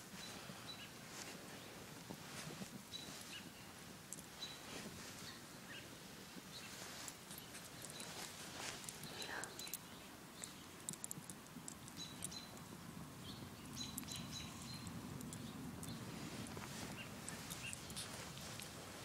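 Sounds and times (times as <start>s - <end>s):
light clicks and rustles: 0.1s - 12.8s, 13.6s - 19.0s
faint high bird chirps: 11.9s - 12.6s.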